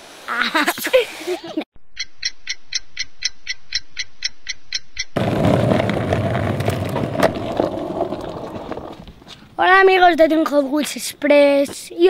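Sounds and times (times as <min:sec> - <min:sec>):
clock ticking: 0:01.9 - 0:05.2
noisy outdoor rush: 0:05.2 - 0:12.0.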